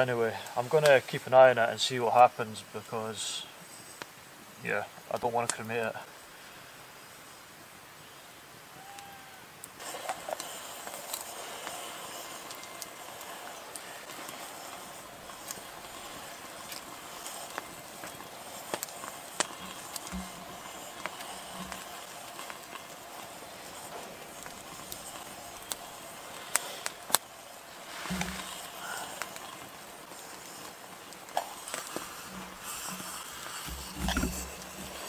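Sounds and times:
campfire crackling: 0.0 - 35.0
steady hiss: 0.0 - 35.0
sharp pops: 9.6 - 35.0.

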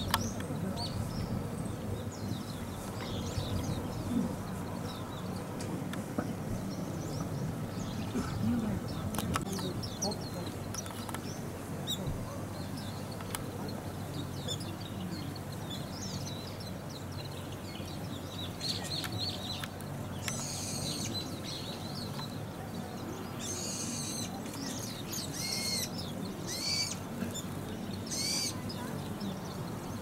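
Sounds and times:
small birds chirping: 0.0 - 30.0
harsh bird calls: 6.2 - 30.0.

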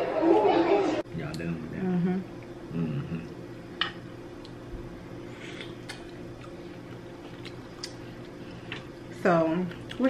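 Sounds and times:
faint chewing: 5.3 - 10.0.

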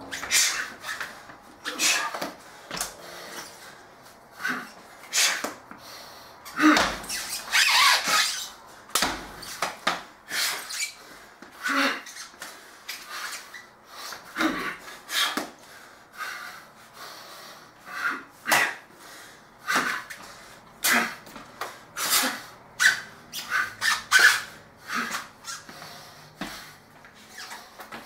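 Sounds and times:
sneakers squeaking on vinyl floor: 0.0 - 3.6, 6.4 - 11.0, 11.6 - 15.5, 19.7 - 28.0
man breathing sharply: 0.2 - 6.9, 10.4 - 11.8, 12.4 - 23.8, 24.4 - 28.0.

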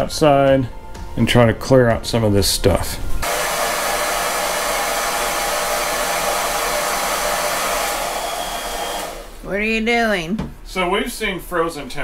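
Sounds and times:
hair dryer running on high: 3.2 - 9.5.

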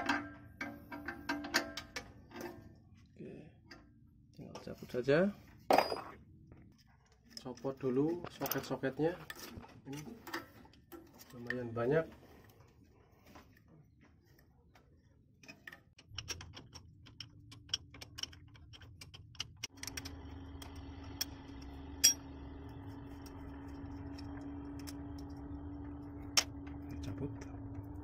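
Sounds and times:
steady low hum: 12.1 - 28.0.

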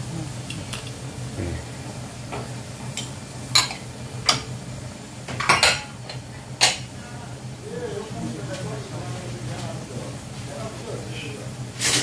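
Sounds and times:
steady low hum: 0.0 - 11.8
dishes and utensils clinking: 5.3 - 6.9, 11.8 - 12.0.

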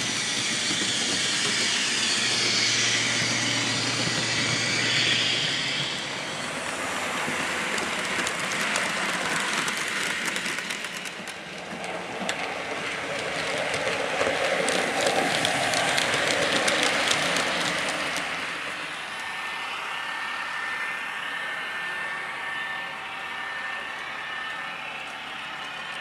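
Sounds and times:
hiss: 0.0 - 11.3, 12.6 - 21.6
model train rushing noise: 0.0 - 26.0
wagon wheels clicking over track: 7.2 - 18.7.

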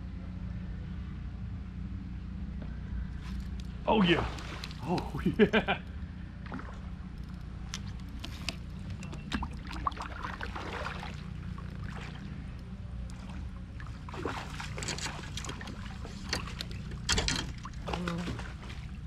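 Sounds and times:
steady low rumble: 0.0 - 19.0
water sloshing around kayak: 3.2 - 5.6, 6.4 - 19.0.

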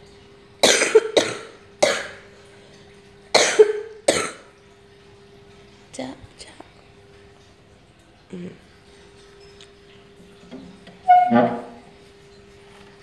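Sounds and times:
person coughing: 0.6 - 2.2, 3.4 - 4.4.

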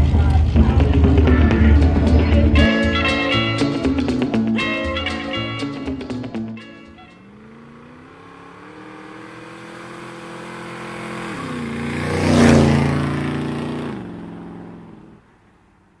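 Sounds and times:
car engine revving past: 6.8 - 15.2.

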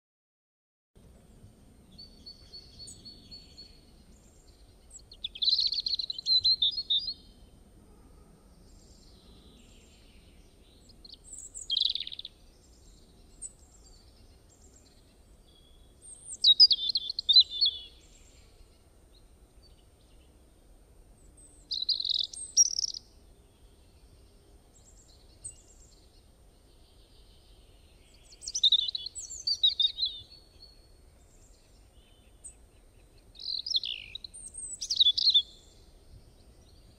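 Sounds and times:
faint low background noise: 1.0 - 36.9
songbird warbling: 11.3 - 12.3, 16.1 - 18.0, 21.7 - 23.1, 28.2 - 30.3, 33.4 - 35.8.

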